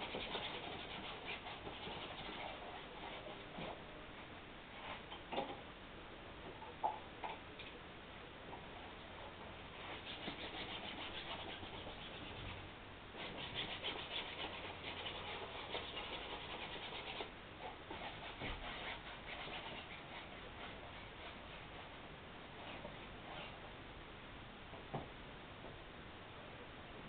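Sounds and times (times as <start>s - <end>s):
drawing stick scratching canvas: 0.0s - 3.7s, 9.8s - 12.6s, 13.2s - 22.0s.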